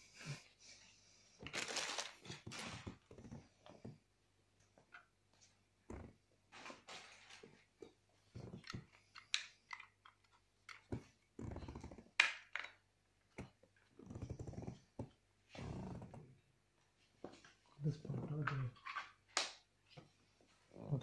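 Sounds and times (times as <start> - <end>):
plastic parts clicking and knocking: 8.4 - 14.3.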